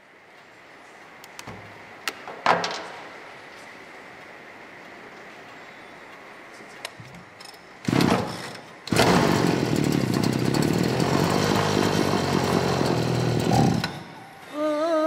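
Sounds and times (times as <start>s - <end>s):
brushcutter engine starting: 7.8s - 14.2s.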